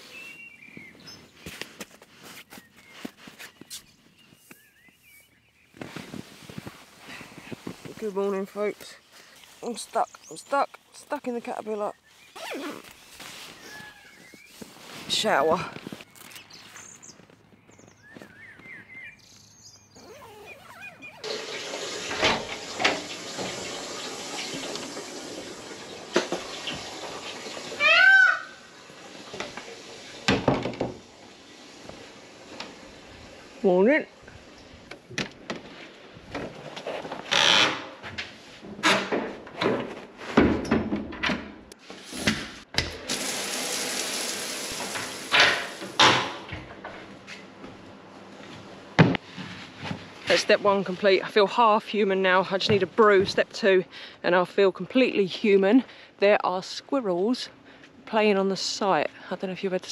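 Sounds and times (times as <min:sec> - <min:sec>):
shower curtain rustling: 0:12.3 - 0:16.4
shower water running: 0:21.2 - 0:28.0, 0:28.6 - 0:33.6, 0:42.9 - 0:46.2.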